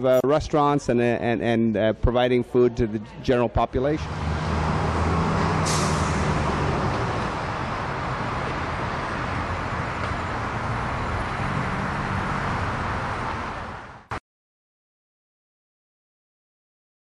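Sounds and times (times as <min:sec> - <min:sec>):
passing cars: 0:03.8 - 0:14.2.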